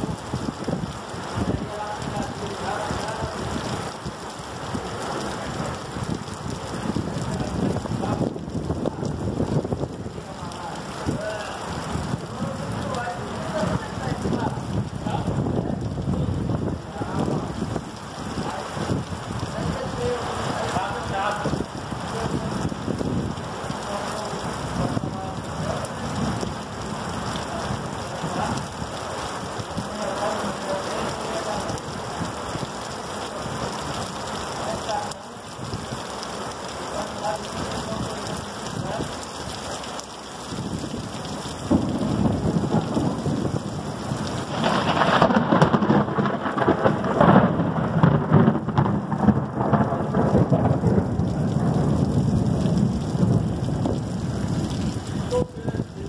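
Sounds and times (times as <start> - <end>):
heavy rain pouring: 0.0 - 56.0
deep rumble of thunder: 40.5 - 56.0.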